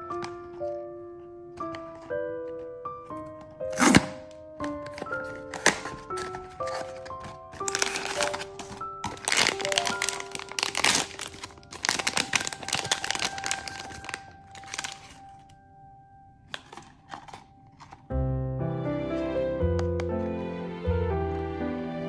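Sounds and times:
soft background music: 0.0 - 22.0
foil bag crinkling and tearing: 3.7 - 15.5.

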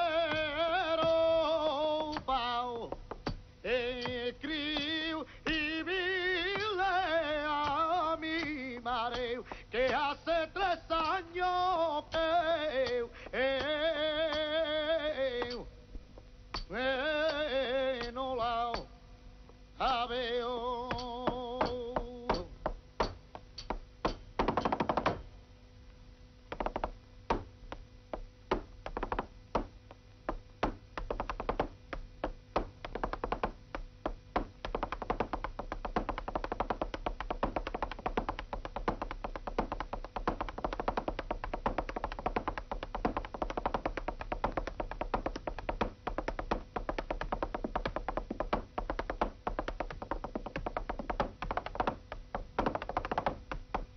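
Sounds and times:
man singing flamenco: 0.0 - 3.0, 3.6 - 15.7, 16.7 - 18.9, 19.8 - 22.6
dancer's heel and toe stamps: 0.0 - 19.0, 19.8 - 25.4, 26.5 - 53.9.

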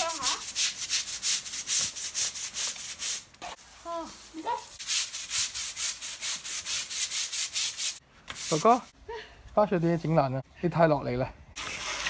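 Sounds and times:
deck brush scrubbing wet paving: 0.0 - 8.9.

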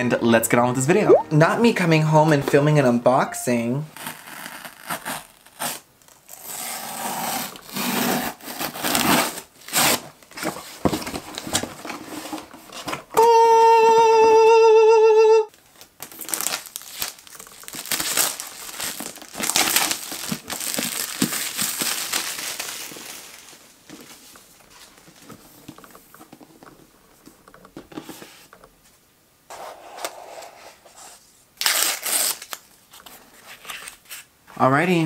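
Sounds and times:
tape tearing: 4.0 - 10.0, 16.0 - 23.4, 31.6 - 32.7
plastic bag crinkling: 15.5 - 25.2.

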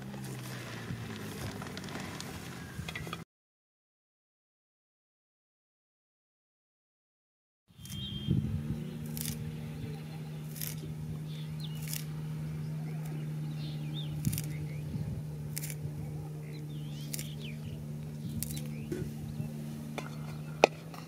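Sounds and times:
birds chirping faintly: 7.7 - 21.0
steady low hum: 7.7 - 21.0
blade snipping leafy greens: 7.8 - 21.0.

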